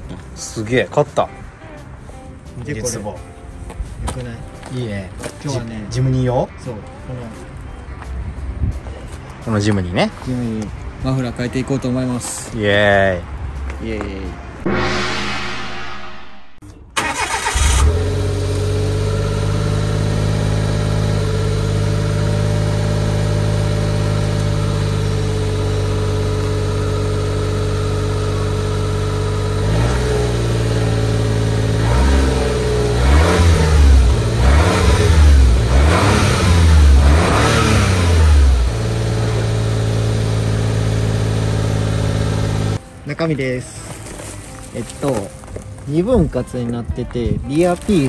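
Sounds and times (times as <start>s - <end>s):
car engine idling and revving: 17.0s - 42.8s.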